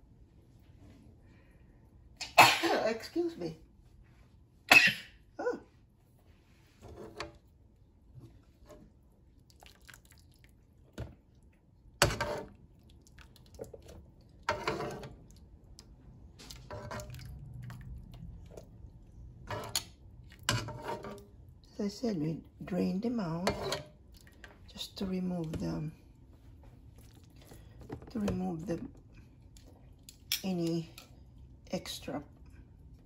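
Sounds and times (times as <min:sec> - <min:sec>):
water splashing and bubbling: 0:09.4 - 0:10.8, 0:16.4 - 0:19.0.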